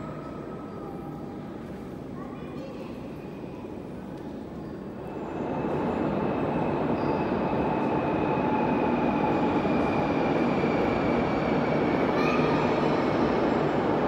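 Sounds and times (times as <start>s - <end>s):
train rumble in tunnel: 0.0s - 14.0s
faint high whine: 4.6s - 14.0s.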